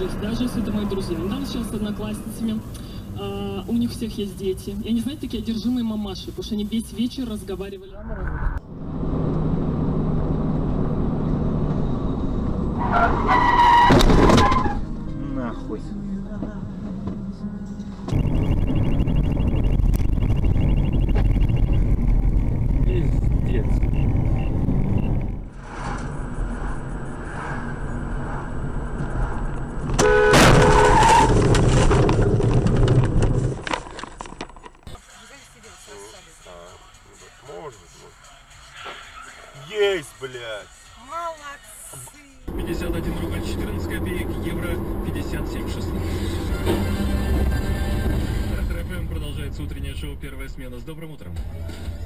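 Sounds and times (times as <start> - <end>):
road and engine noise: 0.0 - 52.0
tyres skidding squeal: 11.2 - 15.0, 23.9 - 31.5, 42.7 - 48.7
car horn: 29.9 - 31.4.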